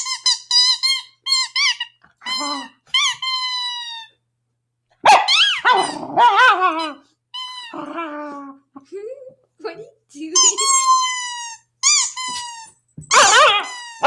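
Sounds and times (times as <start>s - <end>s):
squeaky toy squeaking: 0.0s - 4.2s, 5.1s - 8.1s, 10.3s - 14.0s
dog barking: 5.0s - 6.6s, 13.1s - 13.7s
dog growling: 5.7s - 7.0s, 7.7s - 8.8s.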